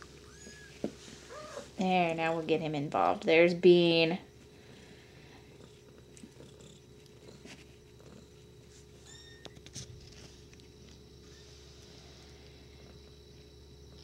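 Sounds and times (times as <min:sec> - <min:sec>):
cat purring: 0:04.6 - 0:09.0.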